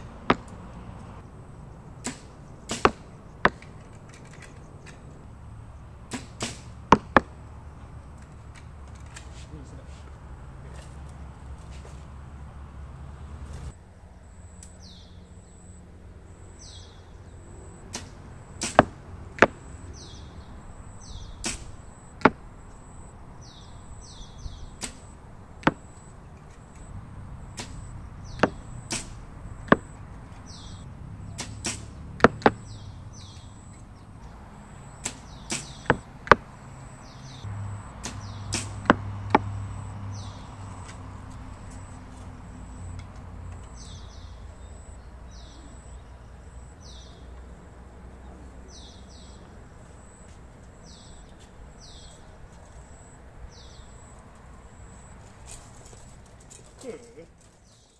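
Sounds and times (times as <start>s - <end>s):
bowstrings snapping: 2.0s - 3.7s, 24.8s - 25.8s, 35.0s - 36.4s, 38.0s - 39.5s
high insect drone: 14.0s - 56.1s
falling bird chirps: 16.4s - 47.3s.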